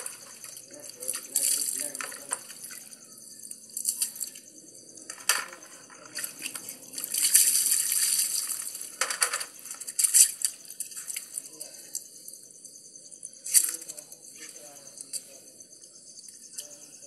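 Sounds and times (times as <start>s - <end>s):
water pouring: 0.0s - 2.8s, 5.3s - 10.2s
water splashing: 0.0s - 2.9s, 5.3s - 11.5s.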